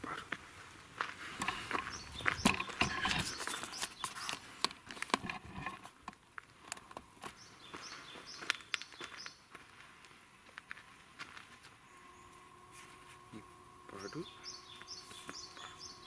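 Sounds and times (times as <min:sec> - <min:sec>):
footsteps crunching on gravel: 0:00.1 - 0:06.6, 0:07.2 - 0:13.3, 0:14.7 - 0:16.0
faint bird chirps: 0:11.8 - 0:16.0.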